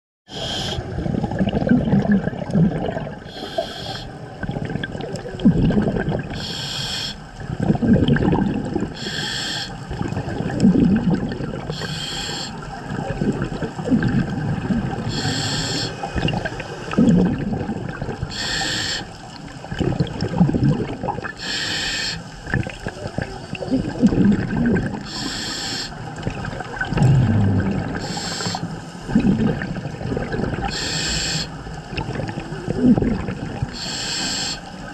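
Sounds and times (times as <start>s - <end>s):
regulator inhalation hiss: 0.3s - 0.8s, 3.3s - 4.1s, 6.4s - 7.2s, 9.0s - 9.8s, 11.8s - 12.6s, 15.1s - 16.1s, 18.3s - 19.1s, 21.4s - 22.3s, 25.1s - 26.0s, 28.0s - 29.0s, 30.7s - 31.6s, 33.8s - 34.7s
exhalation bubbles gurgling: 0.3s - 6.4s, 7.4s - 9.1s, 9.8s - 18.5s, 19.6s - 21.4s, 22.4s - 25.1s, 26.0s - 33.8s.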